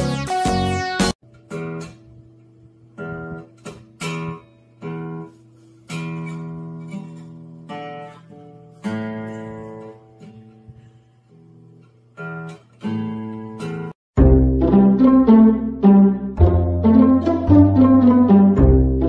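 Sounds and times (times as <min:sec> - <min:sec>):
acoustic guitar strums: 0:11.8 - 0:19.0.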